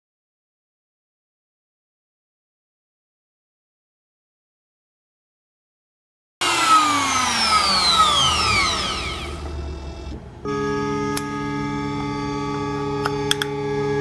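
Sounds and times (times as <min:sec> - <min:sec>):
router spindle whine spinning down: 0:06.4 - 0:12.2
electric guitar music: 0:06.4 - 0:14.0.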